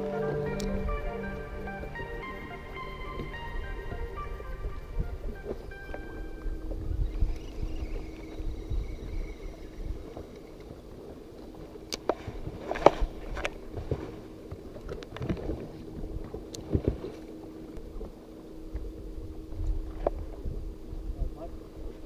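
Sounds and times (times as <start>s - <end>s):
electric trolling motor humming: 0.0s - 12.0s
wind rumble on microphone: 3.1s - 22.0s.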